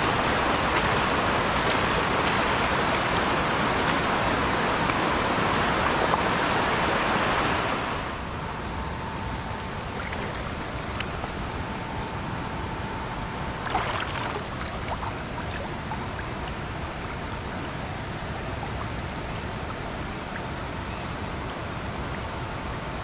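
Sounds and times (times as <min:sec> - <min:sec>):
river flowing over rocks: 0:00.0 - 0:08.2
water splash: 0:13.6 - 0:16.3.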